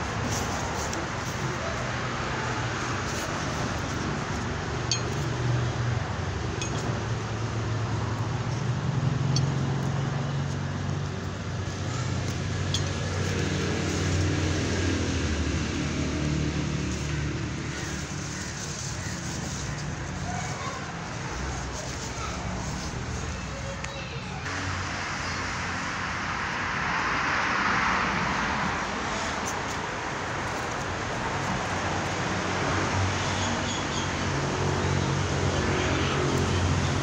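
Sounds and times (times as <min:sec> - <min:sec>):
hands scratching dry soil: 0:00.0 - 0:05.6, 0:06.9 - 0:24.4.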